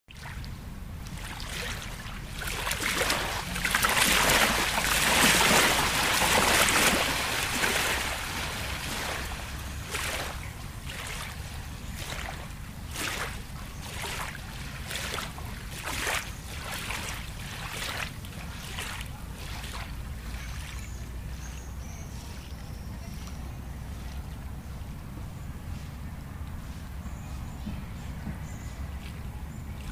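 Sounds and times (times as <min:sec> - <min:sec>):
rush of water: 0:00.1 - 0:21.6
lake water lapping: 0:00.1 - 0:26.8, 0:27.6 - 0:29.9.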